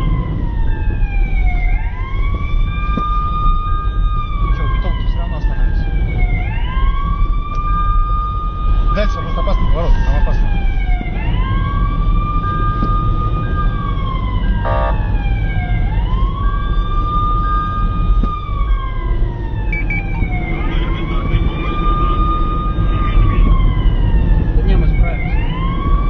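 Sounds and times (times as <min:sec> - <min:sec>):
emergency siren wailing: 0:00.0 - 0:26.0
low road rumble: 0:00.0 - 0:26.0
short repeated beep: 0:19.7 - 0:20.1.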